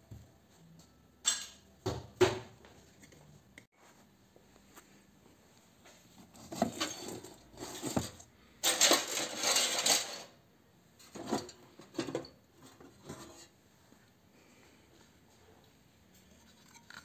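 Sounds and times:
metal sheet rattling and crinkling: 6.4 - 10.4.

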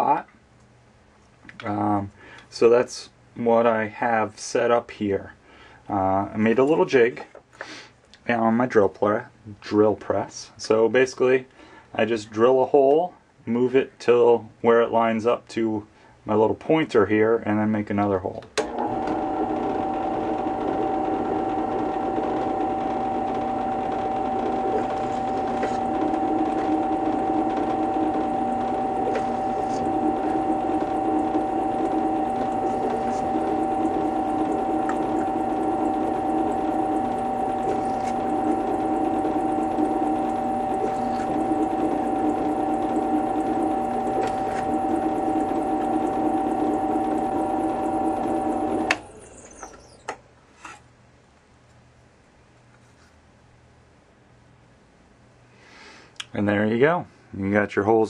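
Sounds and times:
drill press motor running: 18.6 - 50.1
drill bit cutting metal: 19.3 - 49.9.

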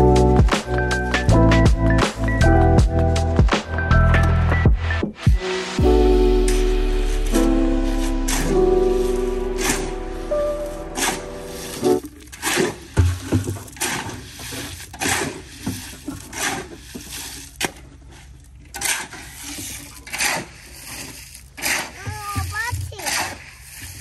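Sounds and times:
shovel scraping wet concrete: 5.8 - 24.0.

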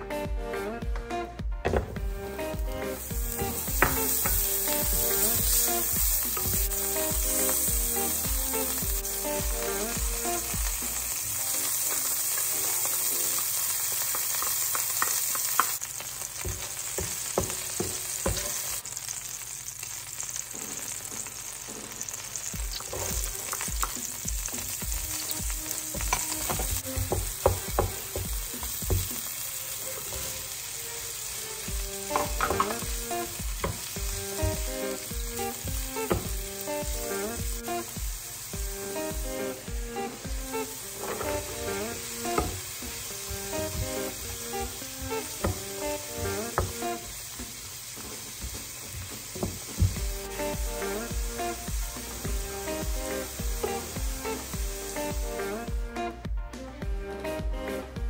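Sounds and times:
onions frying: 1.6 - 56.0
butter sizzling in a pan: 2.0 - 55.8
spatula scraping and tapping pan: 16.4 - 18.6, 32.1 - 32.9, 41.0 - 41.6, 43.3 - 46.8.

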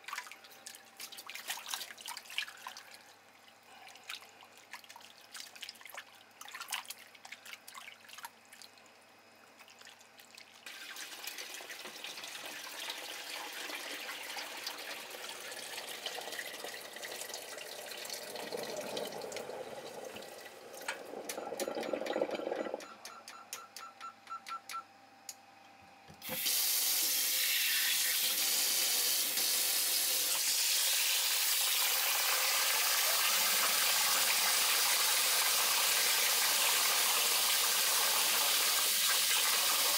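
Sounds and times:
hands splashing in water: 0.0 - 3.0.

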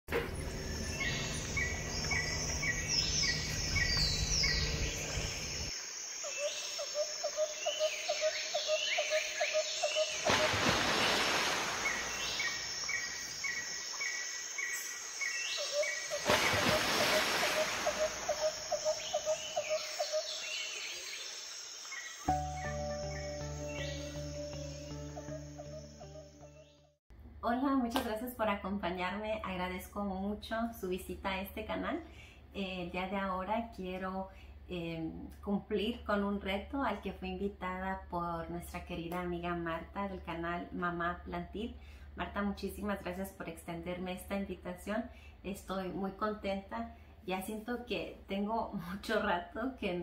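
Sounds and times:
low hum: 0.1 - 5.7
bird calls: 0.2 - 10.6, 11.8 - 26.8.

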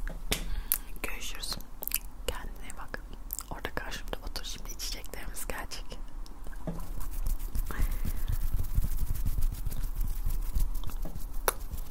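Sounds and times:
hands rubbing and tapping: 6.6 - 11.9.

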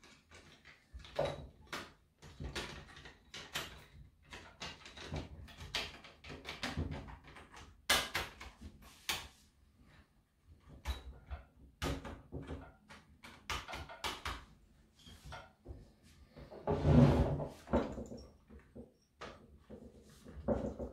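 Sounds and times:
small plastic clicks and knocks: 0.0 - 9.3, 10.7 - 14.5.

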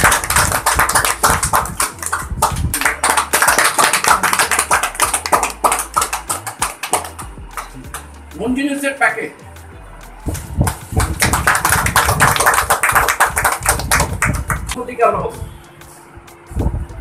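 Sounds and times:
people clapping: 0.0 - 8.2, 10.6 - 14.8.

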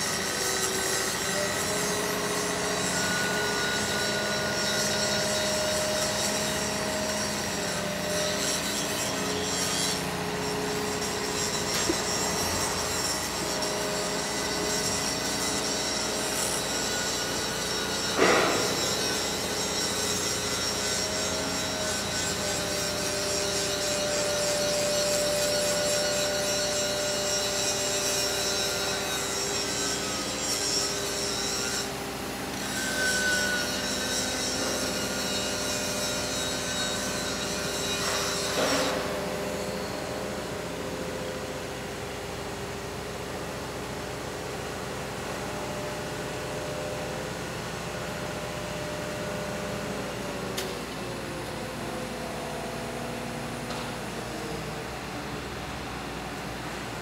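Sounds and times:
crane machinery droning and whining: 0.0 - 57.0
loud metal clank: 18.2 - 18.8.

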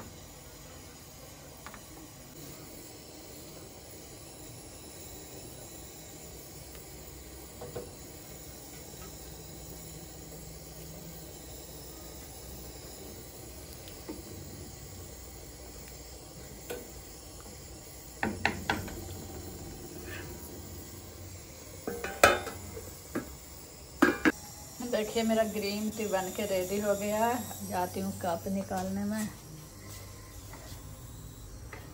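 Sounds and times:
curry simmering hiss: 0.0 - 31.9
spatula knocking pan: 18.2 - 19.0, 21.8 - 23.3, 24.0 - 24.3
steel lid clanking on pan: 21.8 - 22.6.

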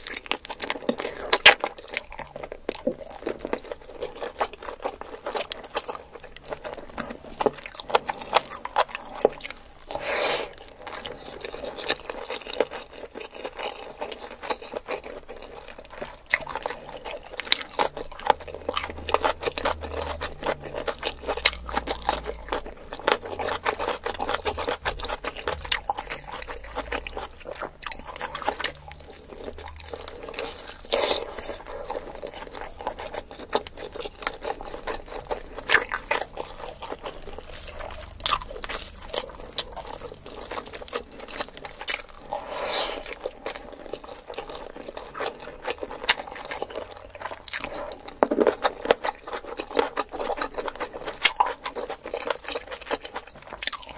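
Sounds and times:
cucumber crunching: 0.0 - 53.9
wet chewing and mouth smacks: 0.0 - 53.9.

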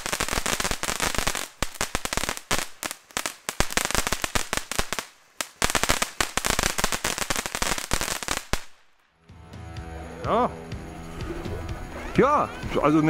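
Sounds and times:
fireworks crackling: 0.0 - 9.2.

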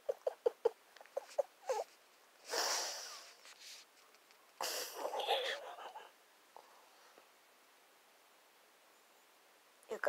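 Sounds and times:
breathy puff of air: 2.4 - 3.4.

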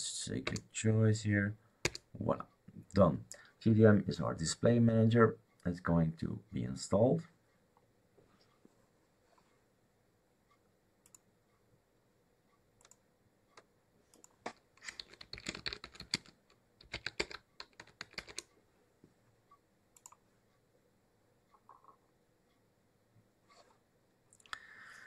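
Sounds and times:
computer keyboard typing: 1.8 - 2.1, 14.2 - 18.5.

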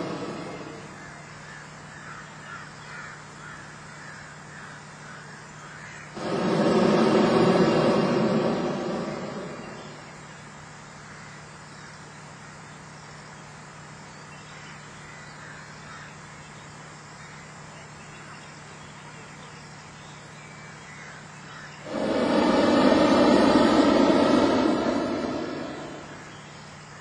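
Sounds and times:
propane burner roar: 0.0 - 1.4, 6.1 - 10.4, 21.8 - 26.7
steady low hum: 0.0 - 2.4, 5.8 - 11.0, 21.8 - 27.0.

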